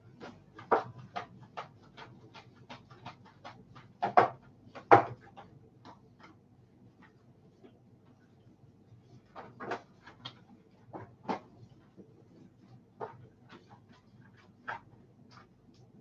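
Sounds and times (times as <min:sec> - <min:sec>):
paintbrush tapping canvas board: 0:00.0 - 0:08.2.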